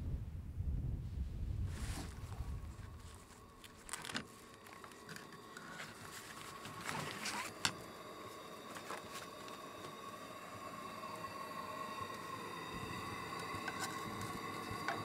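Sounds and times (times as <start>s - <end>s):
plastic bags rustling: 1.9s - 7.7s
faint steady tone: 2.1s - 15.0s.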